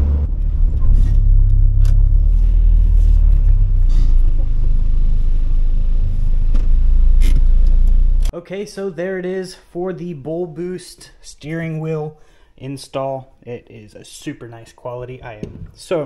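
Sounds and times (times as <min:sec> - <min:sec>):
car engine low rumble: 0:00.0 - 0:08.3.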